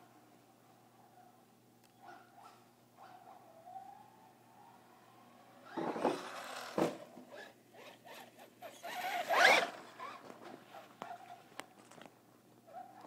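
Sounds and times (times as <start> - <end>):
electric motor whining: 7.4 - 10.2.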